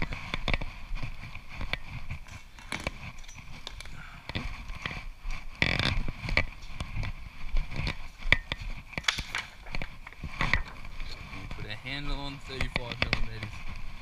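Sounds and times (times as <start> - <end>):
knocks and rustles of handling: 0.0 - 14.0.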